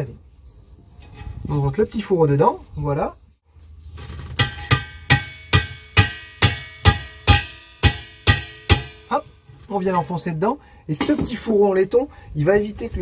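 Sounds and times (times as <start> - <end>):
hammer tapping metal: 4.4 - 9.5.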